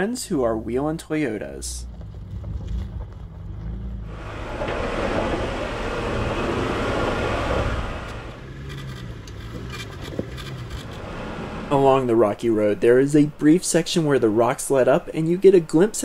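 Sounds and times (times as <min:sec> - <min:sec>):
low engine rumble: 0:00.2 - 0:16.0
broad rushing noise: 0:04.1 - 0:08.4.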